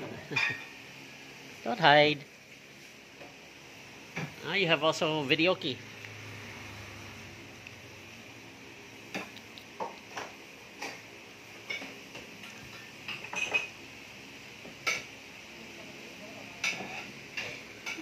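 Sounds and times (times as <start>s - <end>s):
dishes and utensils clattering: 0.0s - 0.7s, 11.6s - 13.8s, 16.6s - 18.0s
steady background hum: 0.0s - 18.0s.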